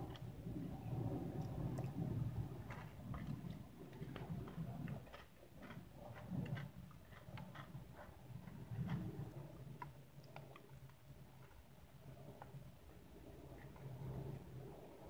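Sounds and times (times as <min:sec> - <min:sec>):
wet chewing mouth sounds: 0:01.4 - 0:11.7.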